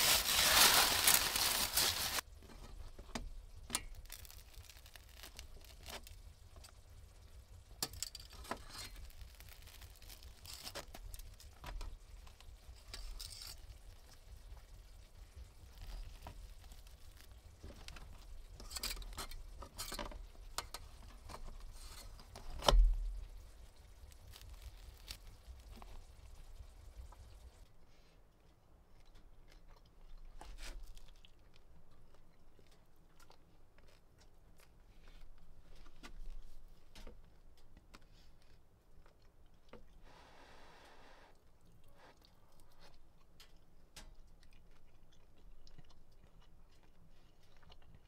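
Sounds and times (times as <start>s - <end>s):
crusty bread crackling and tearing: 0.0s - 27.5s, 29.0s - 39.9s
chewing: 27.9s - 40.1s, 41.3s - 48.0s.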